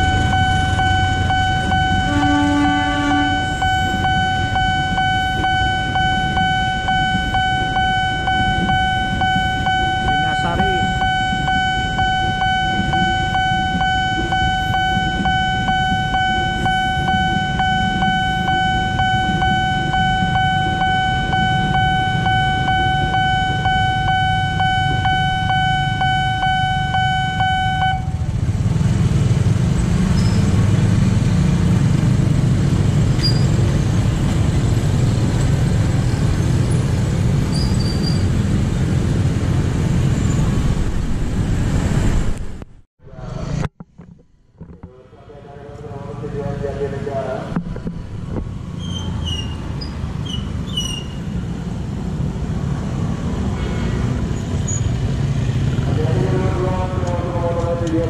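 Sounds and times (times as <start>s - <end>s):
pulsing crossing alarm tone: 0.0s - 28.4s
engines idling and pulling away: 0.0s - 43.5s, 44.9s - 58.0s
train rumbling past: 28.0s - 42.6s.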